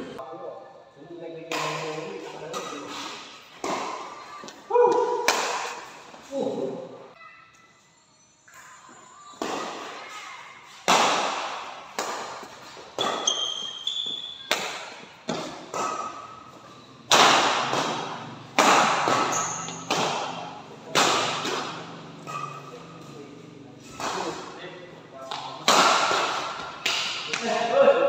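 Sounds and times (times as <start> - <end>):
rackets hitting shuttlecock: 1.5 - 6.2, 9.3 - 10.0, 10.6 - 23.1, 23.8 - 24.6, 25.2 - 27.7.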